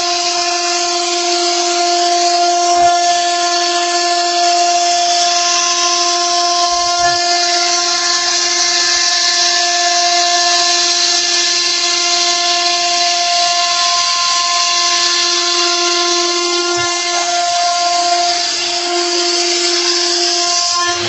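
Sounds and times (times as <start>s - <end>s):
router bit cutting wood: 0.0s - 21.0s
router spindle whining: 0.0s - 21.0s.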